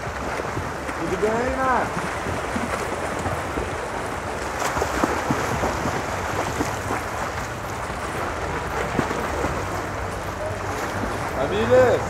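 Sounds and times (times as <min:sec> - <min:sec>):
swimmers splashing in water: 0:00.0 - 0:12.0.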